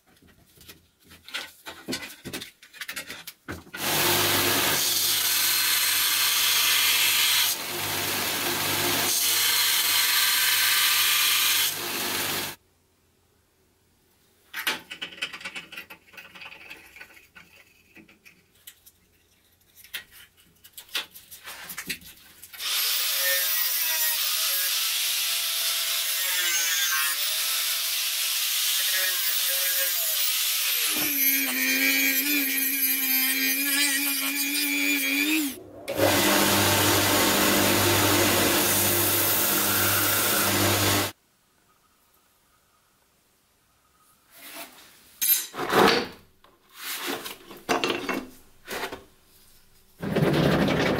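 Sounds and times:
power tool grinding metal: 3.8s - 12.6s, 22.6s - 41.2s.

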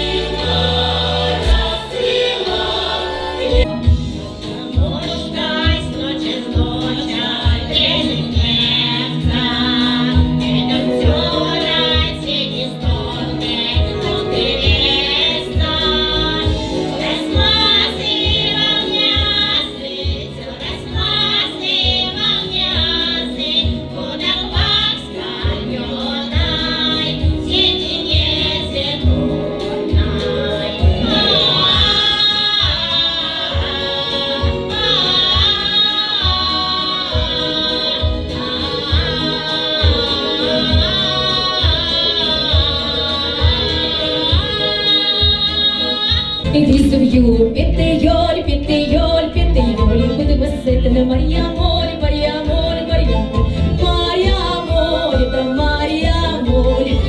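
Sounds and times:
women singing folk song: 0.0s - 57.0s
backing track with low beat: 46.4s - 51.9s.

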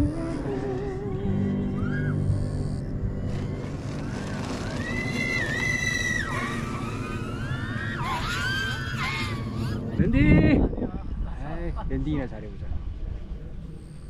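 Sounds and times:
model plane motor whine: 0.0s - 10.0s.

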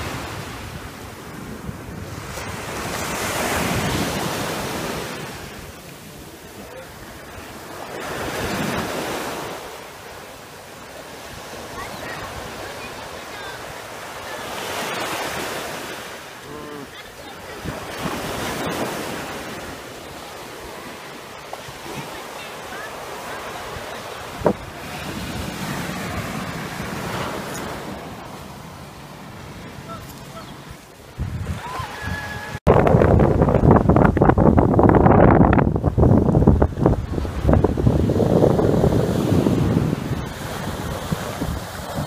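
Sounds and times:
wind buffeting microphone: 0.0s - 9.8s, 21.6s - 42.0s
surf breaking on a beach: 0.0s - 42.0s.

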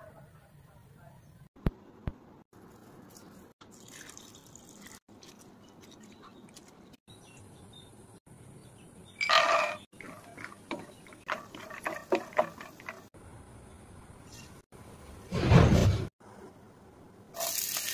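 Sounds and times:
water splashing in a steel bowl: 3.1s - 6.0s.

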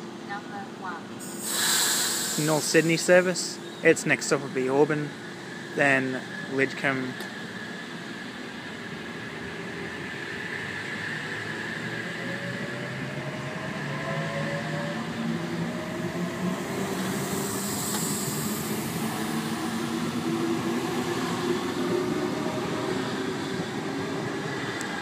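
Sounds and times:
brief high hiss: 1.2s - 2.9s
wheels rumbling on rails: 4.3s - 25.0s.

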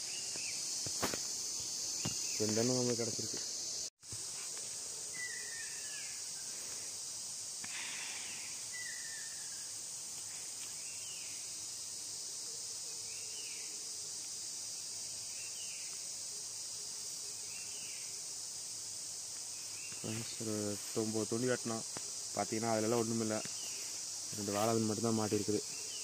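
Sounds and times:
insect chorus drone: 0.0s - 26.0s
short insect chirp: 0.0s - 26.0s.

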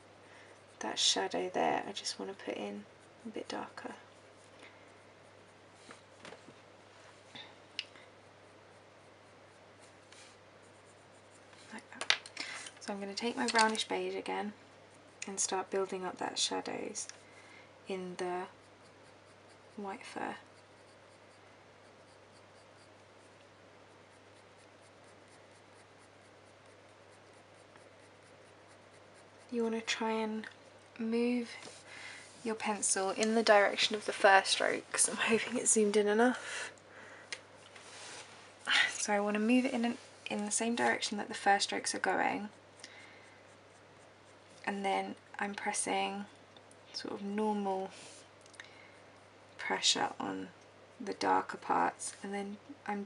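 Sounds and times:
pencil scratching on paper: 0.3s - 6.2s, 8.2s - 11.9s, 17.9s - 35.1s, 39.4s - 44.7s.

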